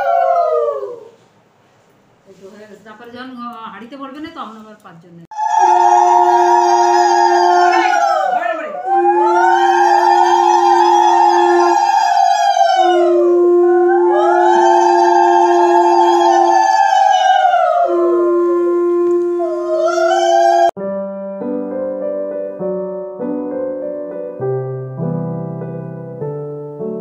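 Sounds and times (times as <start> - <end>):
high wailing tones: 0.0 - 1.1, 5.3 - 20.8
piano music: 5.3 - 27.0.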